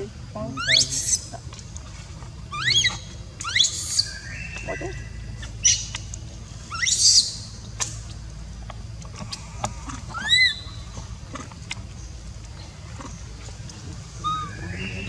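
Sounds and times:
baby monkey squealing: 0:00.6 - 0:01.3, 0:02.5 - 0:05.0, 0:06.7 - 0:07.4, 0:10.1 - 0:10.8, 0:14.2 - 0:15.0.

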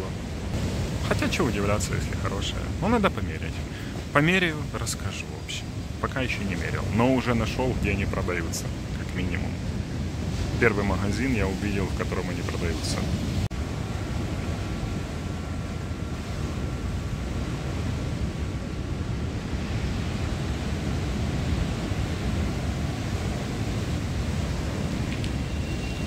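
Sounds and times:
calm sea wash: 0:00.0 - 0:26.0
wind rumbling on microphone: 0:00.0 - 0:26.0.

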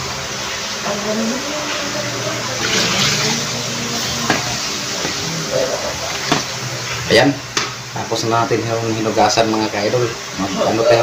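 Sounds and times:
water sloshing and dripping: 0:02.3 - 0:05.4.

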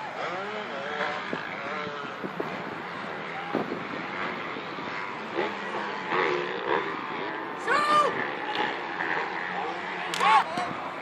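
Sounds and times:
distant highway traffic: 0:00.0 - 0:11.0
wind: 0:00.0 - 0:11.0
players shouting: 0:07.5 - 0:11.0.

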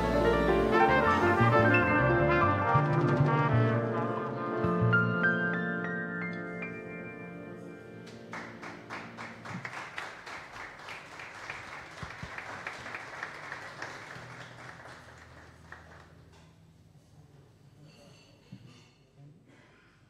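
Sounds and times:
audience applauding: 0:00.0 - 0:03.4, 0:08.1 - 0:16.4
jazz band chord with trumpet: 0:00.0 - 0:09.6.

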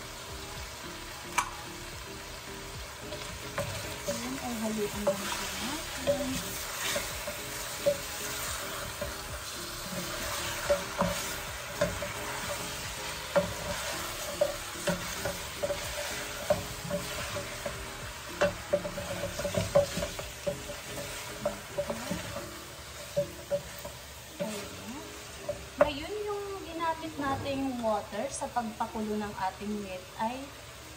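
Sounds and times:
sizzling in a pot: 0:00.0 - 0:30.9
spoon knocking and scraping pot: 0:03.1 - 0:24.8.

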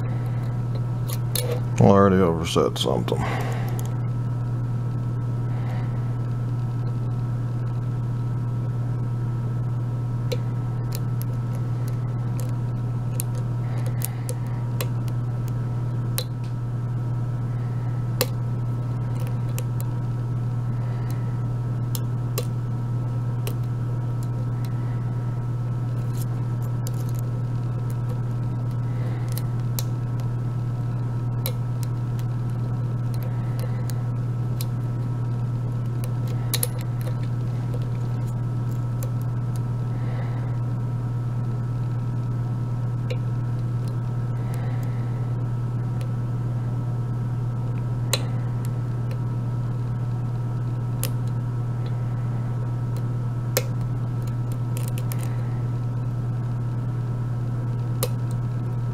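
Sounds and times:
steady low hum: 0:00.0 - 0:58.9
lock pick clicking on pins: 0:12.4 - 0:15.6, 0:35.8 - 0:39.3, 0:52.9 - 0:55.3.

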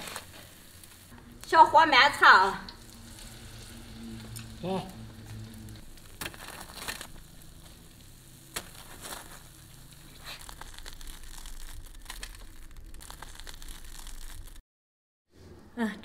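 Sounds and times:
fried dough crackling: 0:00.0 - 0:14.6
dough torn open by hand: 0:05.3 - 0:14.6.

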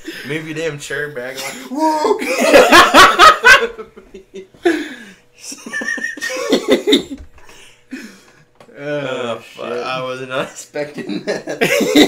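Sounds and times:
person laughing: 0:01.7 - 0:07.2, 0:11.0 - 0:12.0.

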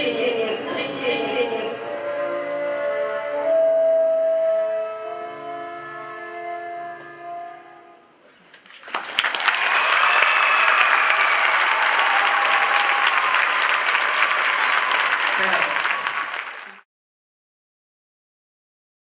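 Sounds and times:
audience applause: 0:08.6 - 0:16.8.

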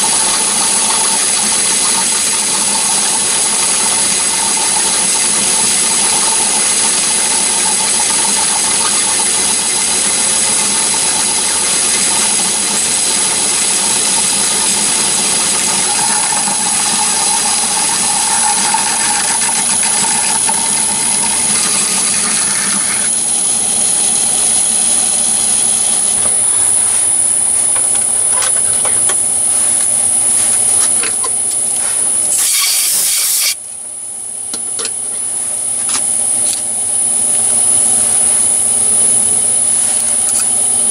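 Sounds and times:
lathe running with whir: 0:10.9 - 0:40.9
short loud hiss: 0:32.3 - 0:33.6.

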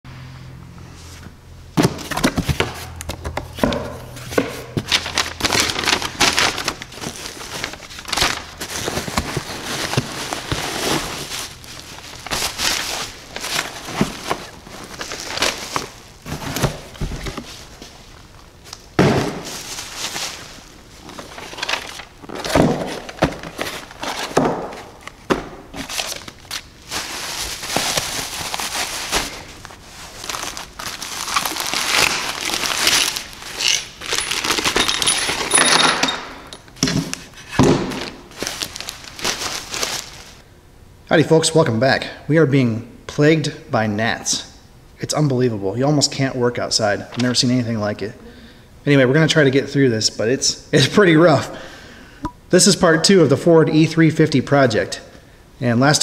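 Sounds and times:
bubble wrap crinkling: 0:04.7 - 0:35.5, 0:38.0 - 0:40.4
packing peanuts rustling: 0:04.8 - 0:25.2, 0:25.8 - 0:35.6, 0:37.3 - 0:40.4.

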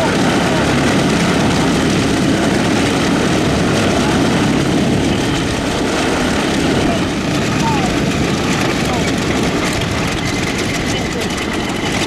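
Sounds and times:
radial aircraft engine running: 0:00.0 - 0:12.0.

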